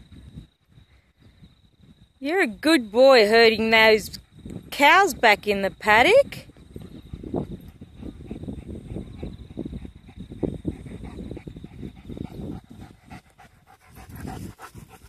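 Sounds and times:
dog panting: 6.3 - 15.0.

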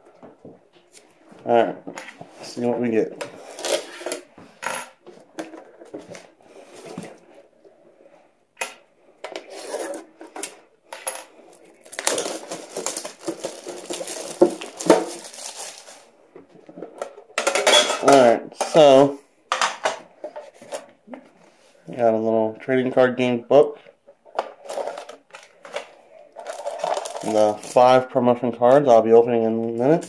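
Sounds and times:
plastic wrap crinkling and tearing: 11.8 - 16.1, 24.6 - 28.0.

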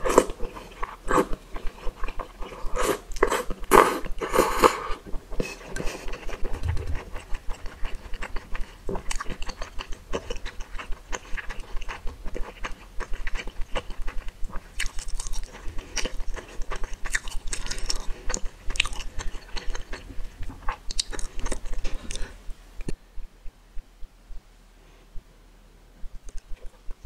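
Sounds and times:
wet chewing with smacks: 5.1 - 23.0.

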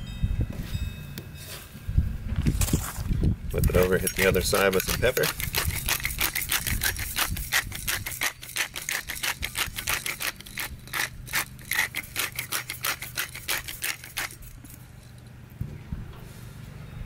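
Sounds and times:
pepper mill grinding clicks: 3.6 - 15.2.

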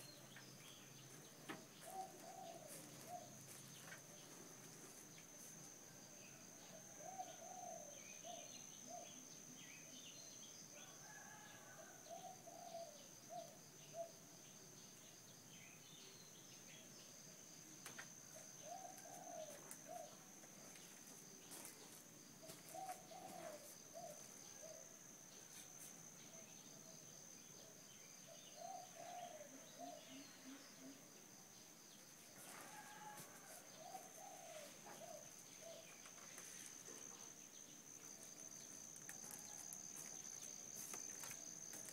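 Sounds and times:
dove cooing: 1.8 - 3.3, 12.1 - 14.1, 22.4 - 24.9, 28.6 - 30.2, 32.6 - 35.9.

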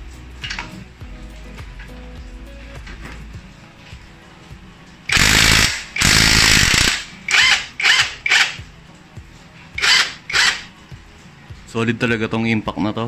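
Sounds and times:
cordless impact driver hammering: 5.1 - 8.6, 9.8 - 10.7.

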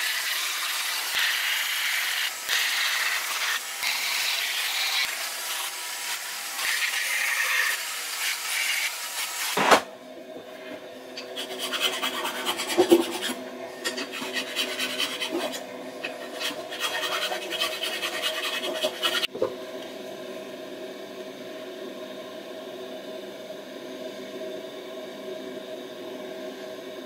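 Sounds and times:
steady background hum: 0.0 - 27.0
file rasping on wood: 11.2 - 19.3.

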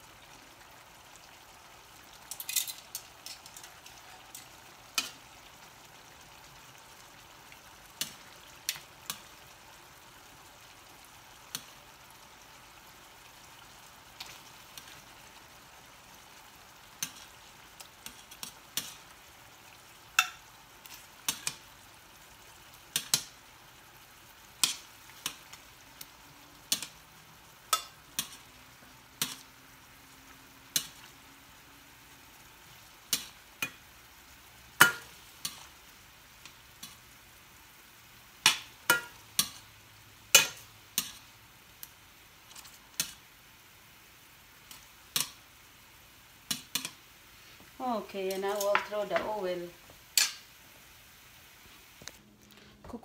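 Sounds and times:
meat sizzling in oil: 0.0 - 52.2
metal tongs tapping skillet: 2.2 - 9.5, 10.6 - 11.9, 13.0 - 19.3, 19.9 - 21.7, 22.7 - 23.4, 24.4 - 31.2, 32.0 - 34.1, 34.7 - 37.2, 38.4 - 39.7, 40.3 - 43.2, 44.6 - 45.4, 46.4 - 47.0, 47.9 - 50.5.

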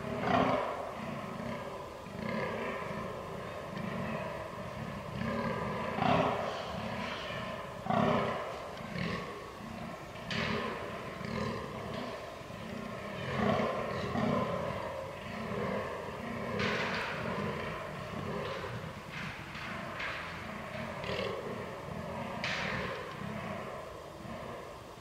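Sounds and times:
deer groaning: 0.0 - 25.0.

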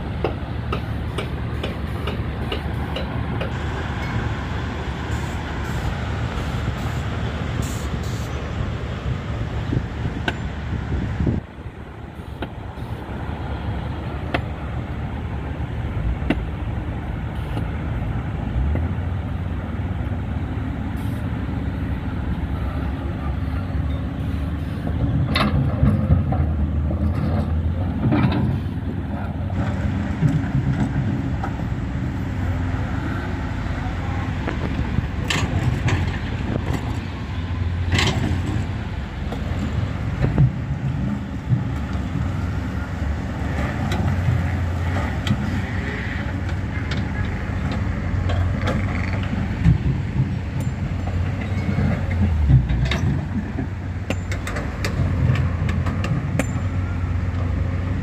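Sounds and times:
heavy diesel engines rumbling: 0.0 - 58.0.

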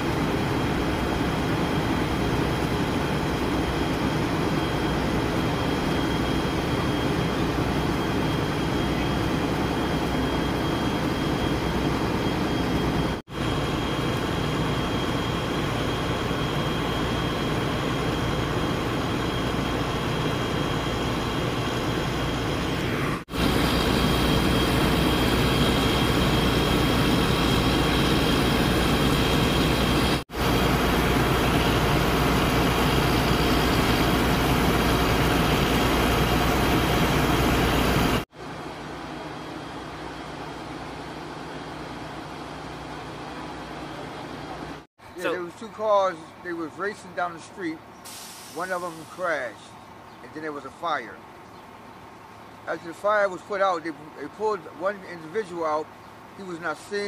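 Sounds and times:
faint high whine: 0.0 - 42.3.

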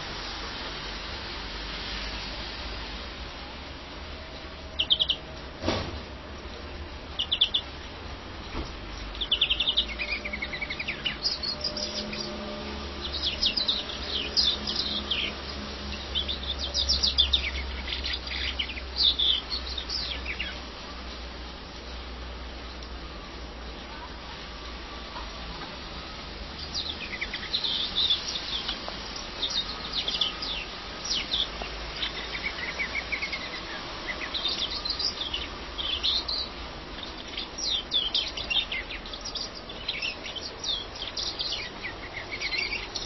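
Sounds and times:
greenfinch singing: 4.0 - 5.5, 7.0 - 21.1, 24.9 - 43.0.

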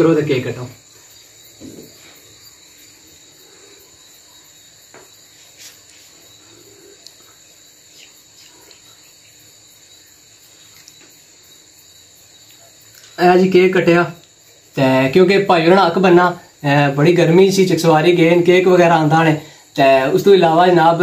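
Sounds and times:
faint taps and knocks: 4.9 - 5.2.

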